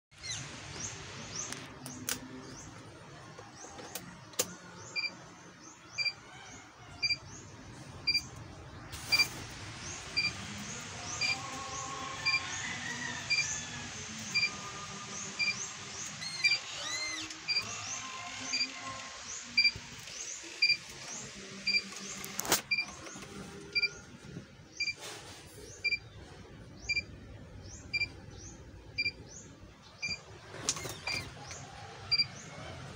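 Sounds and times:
faint high chirps: 0:05.8 - 0:08.4, 0:10.0 - 0:20.8, 0:27.8 - 0:29.4
dashboard warning buzzer beeping: 0:08.1 - 0:08.3, 0:10.2 - 0:10.4, 0:12.2 - 0:12.4, 0:13.3 - 0:13.5, 0:14.3 - 0:14.6, 0:15.4 - 0:15.7, 0:17.4 - 0:17.8.

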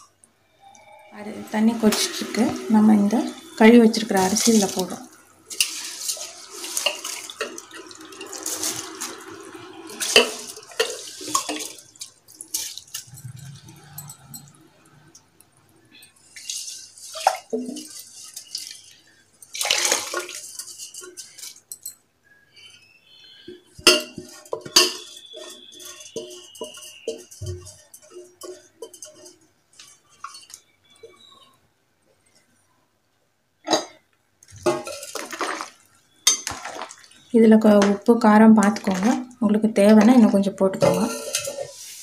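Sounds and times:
liquid sloshing and splashing: 0:03.3 - 0:21.8, 0:23.8 - 0:31.4, 0:34.4 - 0:37.9, 0:38.6 - 0:42.0.

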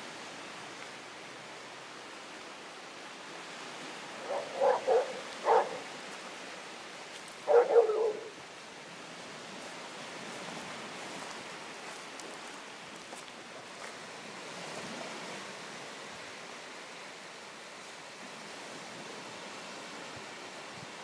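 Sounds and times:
steady background hiss: 0:00.0 - 0:21.0
dog barking: 0:04.2 - 0:05.9, 0:07.4 - 0:08.4.

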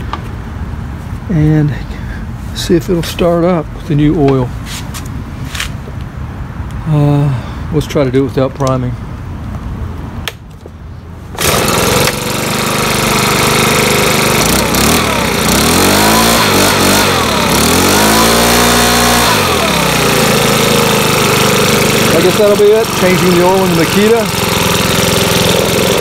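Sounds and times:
leaf blower engine pull-started: 0:11.4 - 0:26.0
leaf blower engine revving: 0:11.4 - 0:26.0.

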